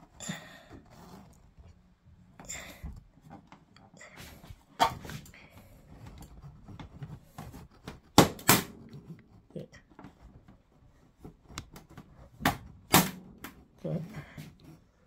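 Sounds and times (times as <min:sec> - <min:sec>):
plastic scraping and ticking: 0:05.2 - 0:08.2, 0:08.8 - 0:12.7.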